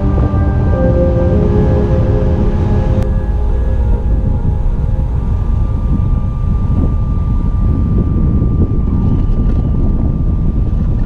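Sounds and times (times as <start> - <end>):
road noise: 0.0 - 6.8
faint high tone: 0.0 - 9.1
wind buffeting microphone: 0.0 - 11.0.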